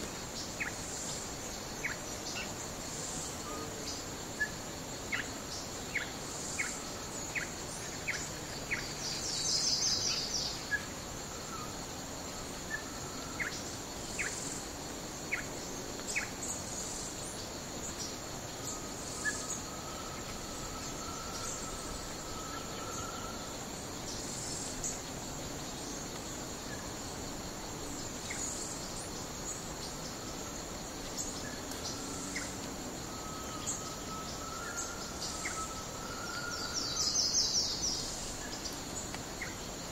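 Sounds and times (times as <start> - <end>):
high insect drone: 0.0 - 39.9.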